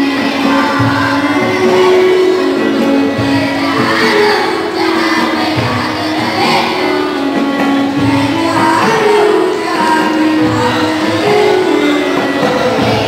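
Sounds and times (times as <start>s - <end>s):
boys singing together: 0.0s - 13.0s.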